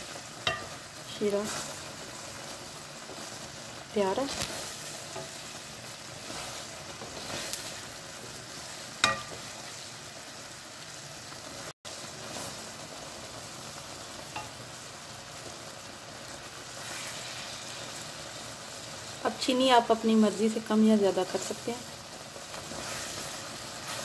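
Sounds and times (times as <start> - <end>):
syrup bubbling in pan: 0.0 - 19.3, 21.8 - 24.0
spoon knocking against pan: 0.4 - 0.8, 9.0 - 9.5
wooden spoon stirring: 4.2 - 9.5.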